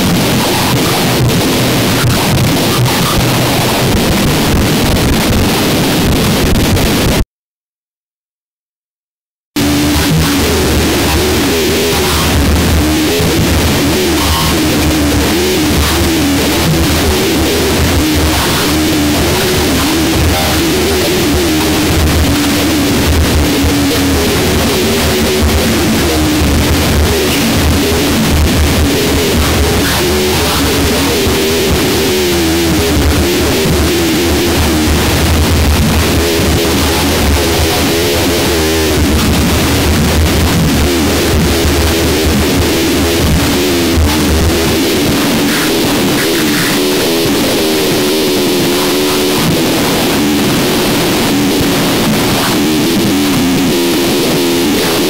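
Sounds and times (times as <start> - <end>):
wall of distorted noise: 0.0 - 7.2, 9.6 - 55.0
warbling drones: 10.2 - 40.0.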